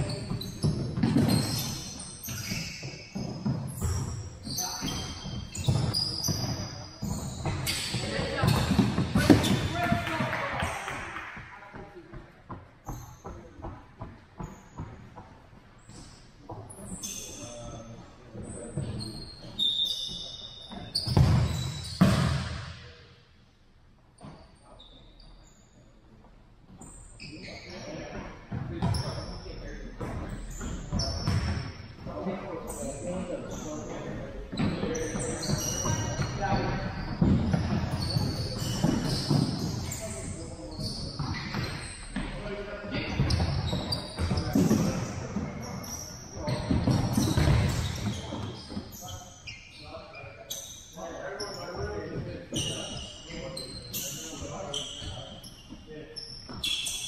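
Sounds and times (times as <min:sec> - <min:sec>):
sneakers squeaking on gym floor: 0:00.0 - 0:23.2, 0:24.0 - 0:57.0.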